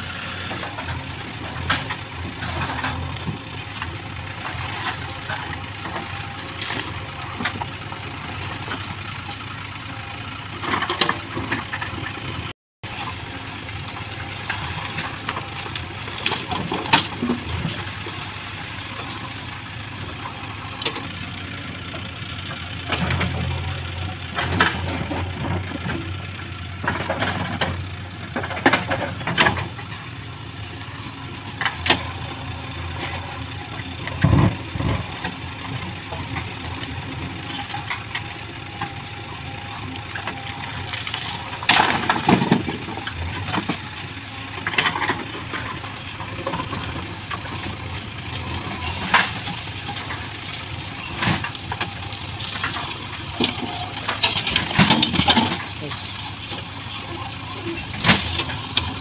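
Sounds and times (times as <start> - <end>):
diesel engine running: 0.0 - 59.0
metal clanks and knocks: 52.7 - 56.0.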